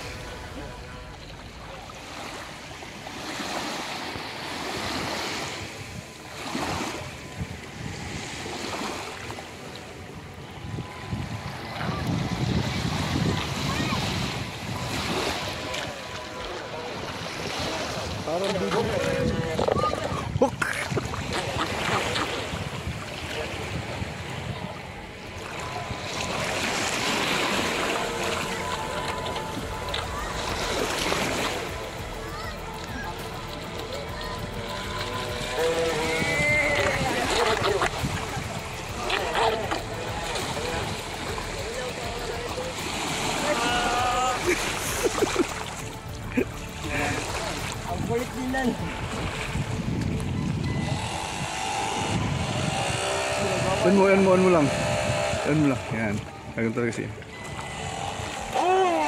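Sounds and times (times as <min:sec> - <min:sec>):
waves lapping onto a beach: 0:00.0 - 0:59.0
wind buffeting the microphone: 0:04.7 - 0:08.8, 0:10.0 - 0:16.4, 0:17.0 - 0:26.8, 0:46.0 - 0:58.6.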